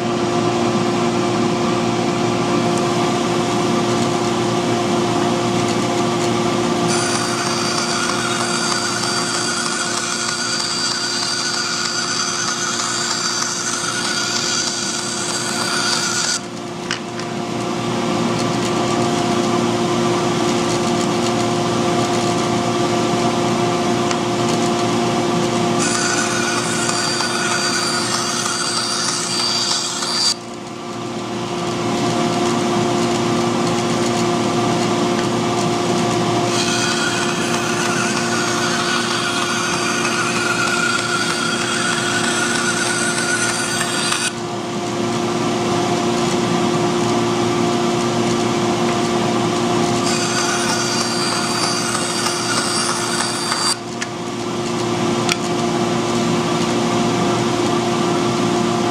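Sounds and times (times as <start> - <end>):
bandsaw motor hum: 2.4 - 58.2
blade cutting hardboard hiss: 6.9 - 16.4, 25.8 - 30.4, 36.5 - 44.3, 50.0 - 53.8.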